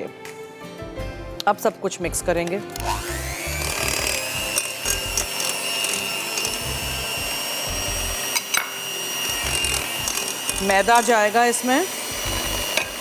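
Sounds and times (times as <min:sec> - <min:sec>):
mixer clicks: 0:02.7 - 0:06.7, 0:09.4 - 0:11.4
electric hand mixer whining: 0:02.8 - 0:13.0.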